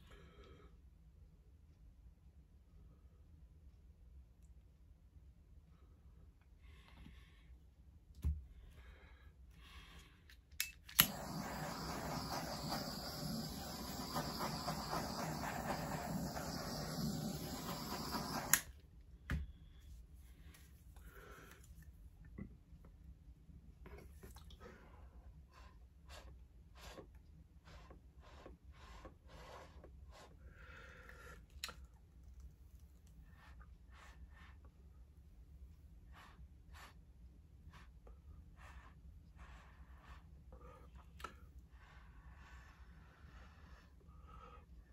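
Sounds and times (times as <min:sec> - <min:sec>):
torch igniter clicks: 0:10.6 - 0:18.7
torch flame hissing: 0:11.0 - 0:18.7
breath puffs through a straw: 0:11.1 - 0:18.7.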